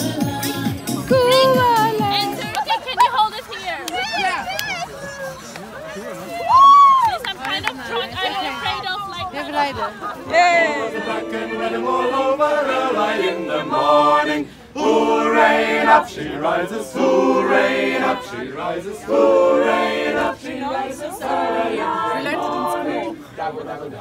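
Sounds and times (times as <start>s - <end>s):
group singing unaccompanied: 0.0s - 2.7s, 7.9s - 24.0s.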